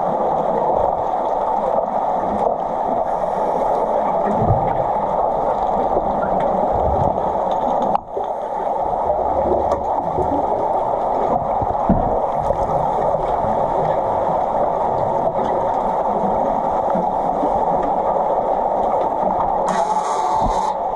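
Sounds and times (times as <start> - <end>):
churning water underwater: 0.0 - 20.9
dull underwater knocks: 11.3 - 12.5.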